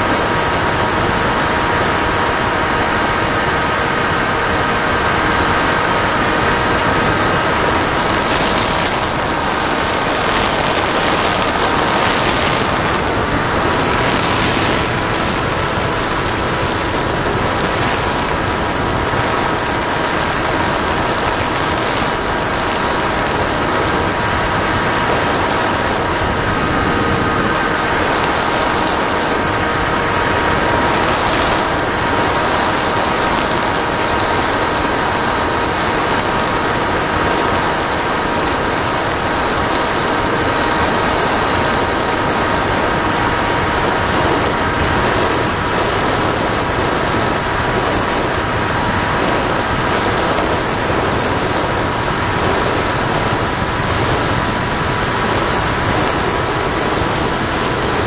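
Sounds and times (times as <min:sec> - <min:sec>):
electric motor and propeller whine: 0:00.0 - 0:58.0
wind rushing: 0:05.8 - 0:33.0.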